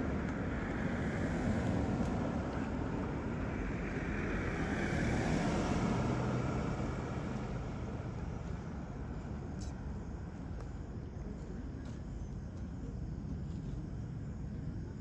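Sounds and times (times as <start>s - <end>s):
vehicle passing on road: 0.0s - 10.3s
faint low hum: 5.5s - 15.0s.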